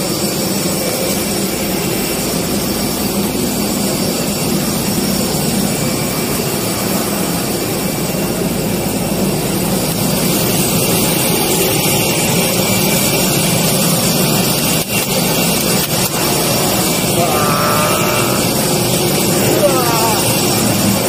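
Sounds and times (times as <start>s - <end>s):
faint voice: 17.2s - 18.7s, 19.3s - 20.6s.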